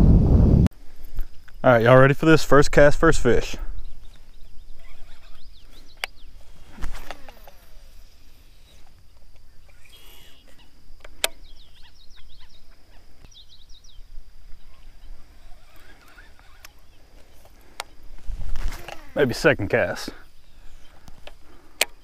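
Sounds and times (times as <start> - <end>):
small birds chirping: 3.4 - 22.0
fishing reel spool whirring: 4.4 - 12.5, 14.5 - 22.0
sharp clicks: 21.0 - 22.0.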